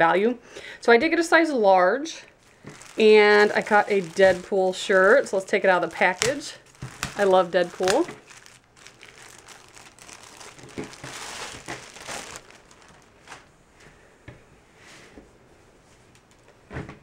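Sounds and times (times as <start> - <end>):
plastic bag crinkling: 2.3 - 13.5.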